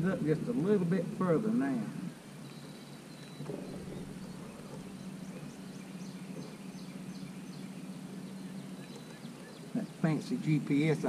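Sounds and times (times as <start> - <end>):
bird chirping: 2.1 - 11.0
electric trolling motor humming: 2.3 - 11.0.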